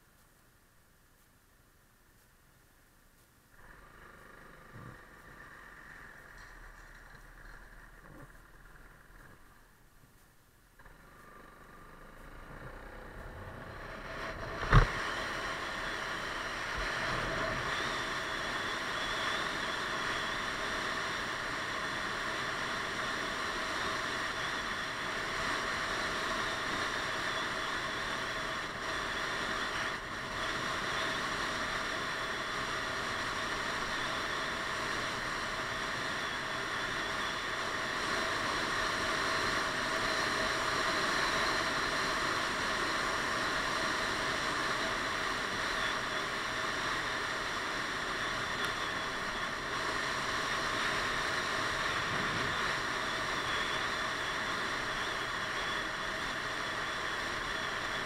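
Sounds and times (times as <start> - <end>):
road noise: 3.5 - 58.0
scooter engine running: 3.6 - 10.2, 10.8 - 58.0
wind rush: 50.6 - 53.2.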